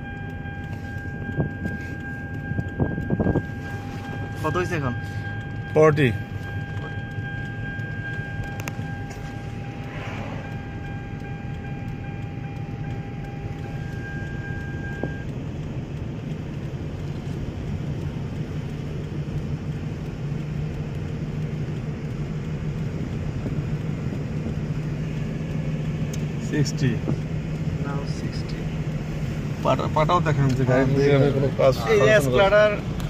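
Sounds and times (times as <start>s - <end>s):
high electronic tone: 0.0s - 15.2s
road and tyre rumble: 0.0s - 33.0s.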